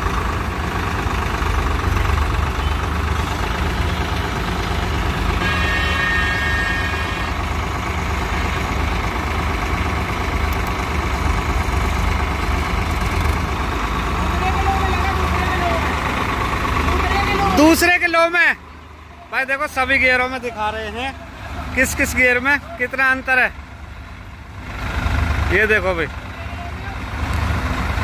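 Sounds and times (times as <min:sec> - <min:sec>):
tractor driving: 0:00.0 - 0:28.0
tractor engine idling: 0:00.0 - 0:28.0.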